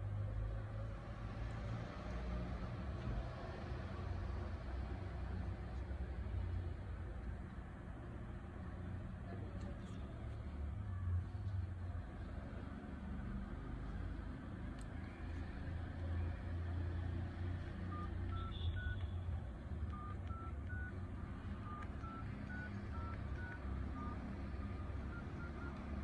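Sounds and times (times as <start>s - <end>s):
phone keypad beeps: 17.8s - 19.2s, 19.8s - 26.0s.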